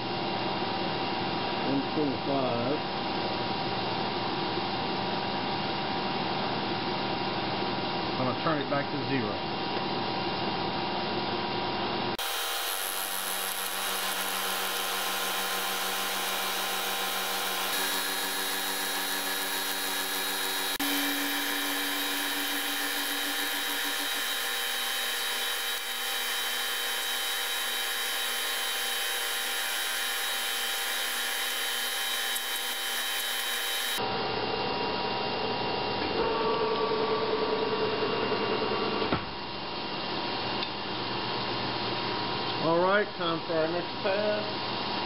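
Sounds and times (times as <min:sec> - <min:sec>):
milling machine cutting metal: 0:12.2 - 0:34.0.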